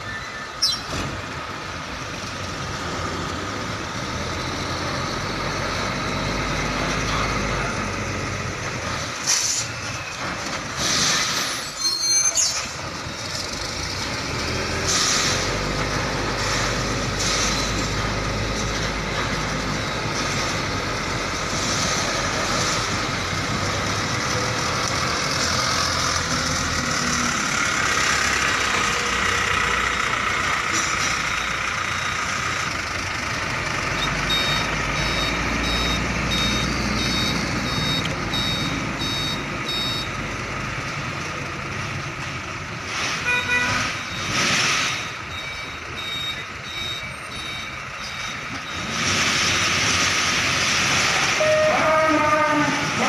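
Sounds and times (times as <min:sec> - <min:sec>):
truck diesel engine running: 0:12.9 - 0:43.0
reversing alarm beeping: 0:31.3 - 0:32.5, 0:34.0 - 0:40.2, 0:43.4 - 0:49.1
quick run of beeps: 0:34.0 - 0:40.1, 0:44.0 - 0:48.9.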